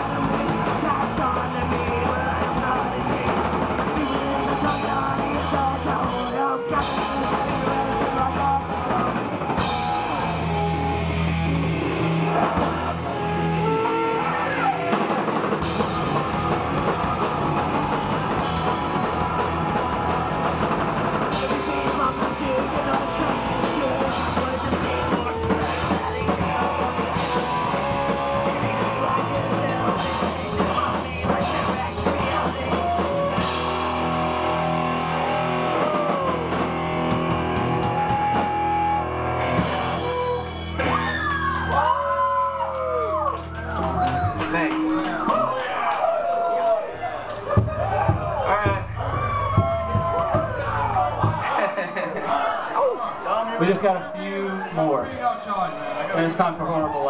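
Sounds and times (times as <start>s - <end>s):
electric bass: 0.0s - 45.6s, 47.2s - 51.6s
electric guitar: 0.0s - 45.6s
drum kit: 0.0s - 52.2s.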